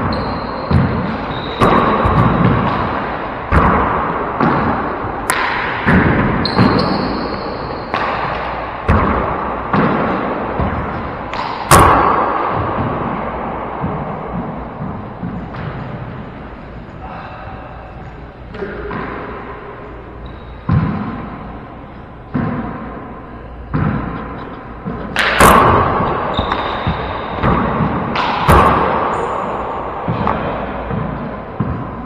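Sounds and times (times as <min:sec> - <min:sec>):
handball smacks echoing: 0:00.0 - 0:16.3, 0:20.6 - 0:21.5, 0:23.7 - 0:32.0.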